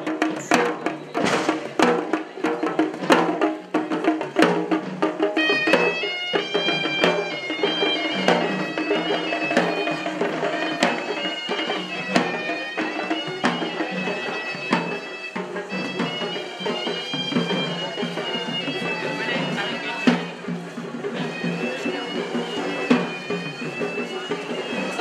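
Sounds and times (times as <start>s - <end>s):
drum strokes: 0.0s - 25.0s
shrill reed pipes melody: 5.3s - 25.0s.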